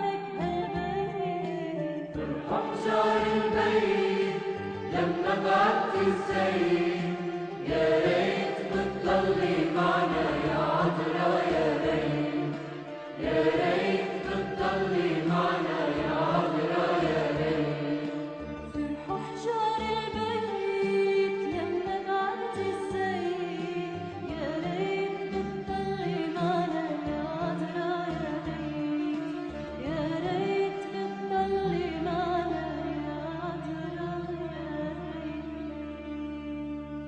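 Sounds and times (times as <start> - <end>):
musical accompaniment: 0.0 - 37.0
person singing a hymn: 2.2 - 18.4.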